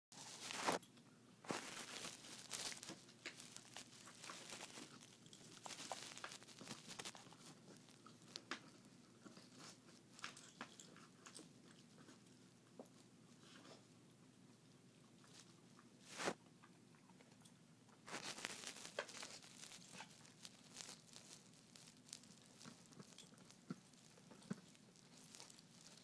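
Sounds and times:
cardboard crunching and tearing: 0.2s - 0.8s, 1.5s - 7.9s, 18.1s - 23.4s
puppy chewing cardboard: 1.6s - 13.8s, 18.1s - 26.0s.

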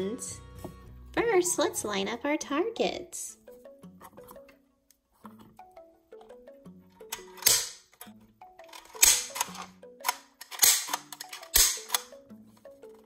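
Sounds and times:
light background music: 0.0s - 13.0s
toy launcher plastic clack: 7.1s - 8.1s, 8.7s - 12.1s.

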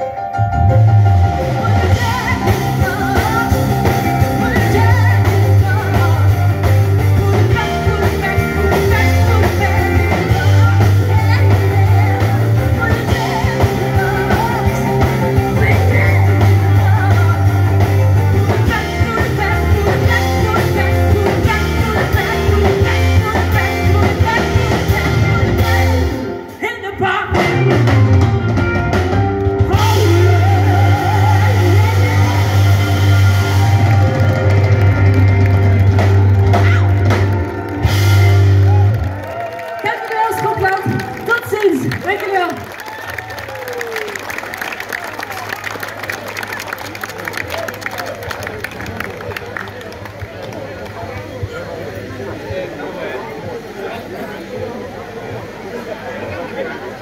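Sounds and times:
blues-rock band playing: 0.0s - 42.3s
woman singing: 1.5s - 28.3s, 29.6s - 33.5s.

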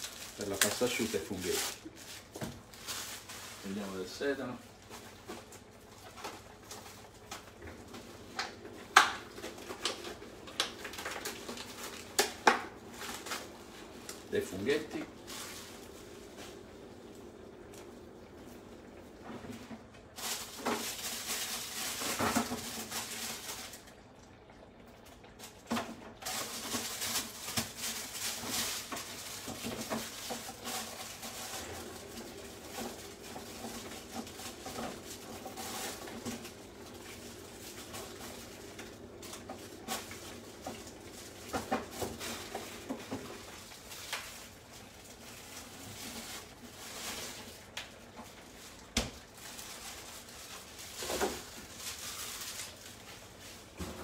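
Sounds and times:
faint steady hum: 0.0s - 54.0s
pan simmering: 4.8s - 20.8s, 28.8s - 45.7s.

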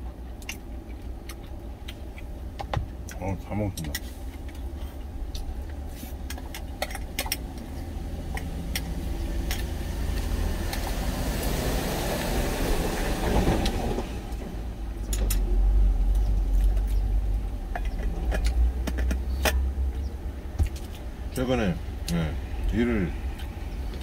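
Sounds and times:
truck engine idling: 0.0s - 24.0s
large vehicle passing: 7.6s - 20.5s, 21.1s - 24.0s.

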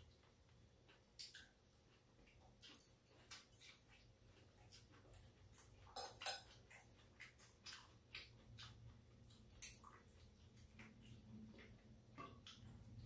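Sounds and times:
chopsticks and spoon clinking bowls: 5.8s - 6.8s, 9.4s - 9.9s.

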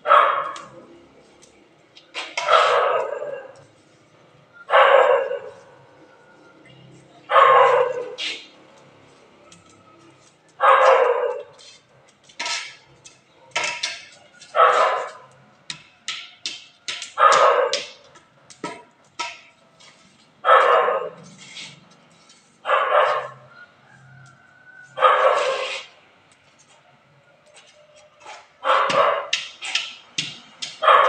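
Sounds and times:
dog barking: 0.0s - 0.6s, 2.4s - 3.6s, 4.7s - 5.7s, 7.3s - 8.2s, 10.6s - 11.5s, 14.5s - 15.3s, 17.2s - 18.0s, 20.4s - 21.2s, 22.6s - 23.4s, 25.0s - 25.9s, 28.6s - 29.3s, 30.8s - 31.0s.

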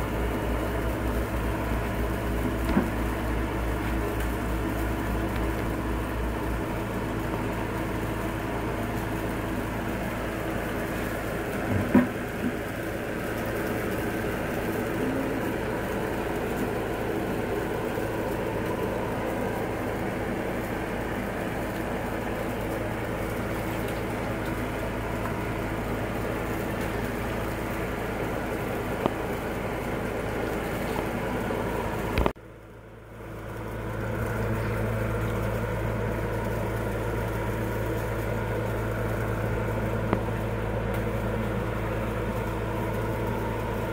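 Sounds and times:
motor humming: 0.0s - 32.4s, 33.0s - 43.9s.

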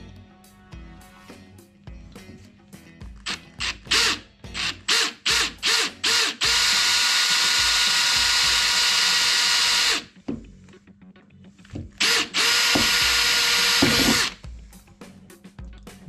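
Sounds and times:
drill boring through steel: 3.3s - 10.1s, 12.0s - 14.4s.

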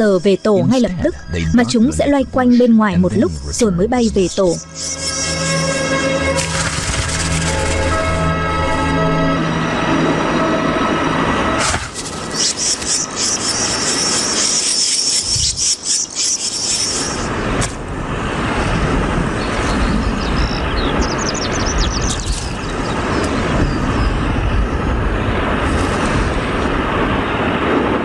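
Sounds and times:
bird chirping: 0.0s - 7.8s, 12.0s - 17.3s, 19.4s - 24.3s
low rumbling noise: 0.0s - 12.4s
nestlings begging with shrill chirps: 4.4s - 6.6s, 12.2s - 17.3s.

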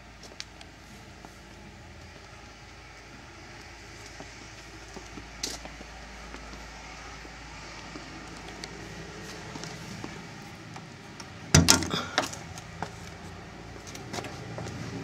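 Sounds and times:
metal locker door opening: 11.6s - 12.1s.

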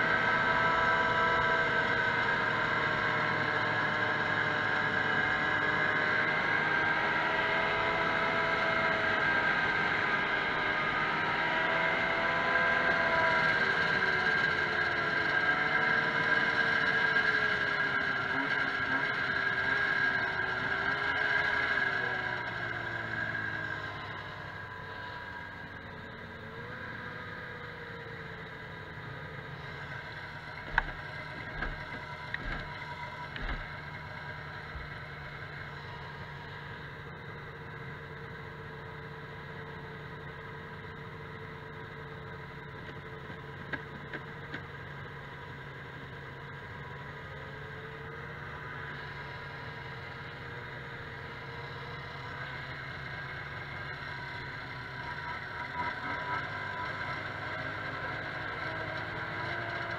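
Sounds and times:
snowmobile engines idling: 12.8s - 59.9s.

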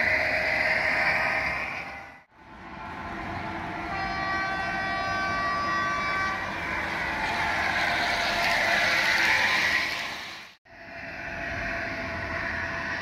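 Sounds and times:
model train horn tone: 3.9s - 6.5s.

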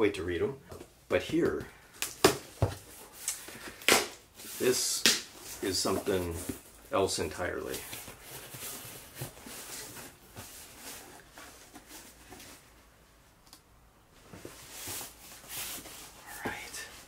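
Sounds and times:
cardboard box rustling and scraping: 7.7s - 12.7s.

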